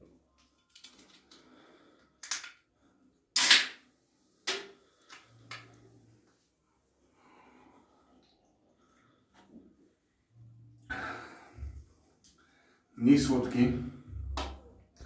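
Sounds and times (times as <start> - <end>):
can opening hiss: 3.4 - 3.8.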